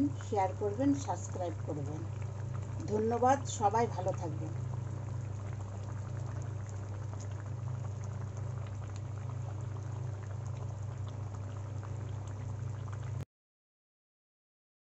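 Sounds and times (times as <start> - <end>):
constant low hum: 0.0 - 13.2
gravy bubbling in a pan: 0.0 - 13.2.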